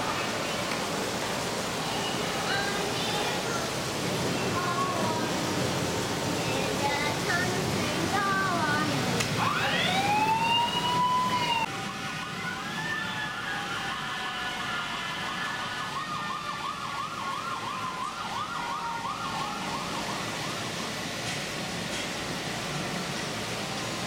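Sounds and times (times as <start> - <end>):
emergency vehicle siren: 9.3 - 21.2.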